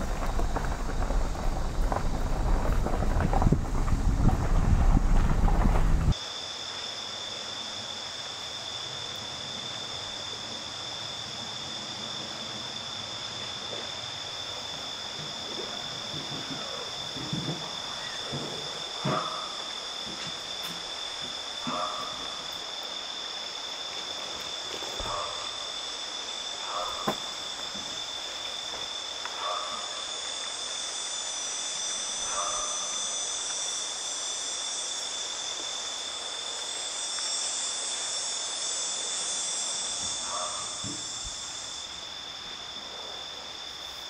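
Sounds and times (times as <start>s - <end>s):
insect chorus trilling: 0.0s - 44.0s
high hiss: 17.6s - 44.0s.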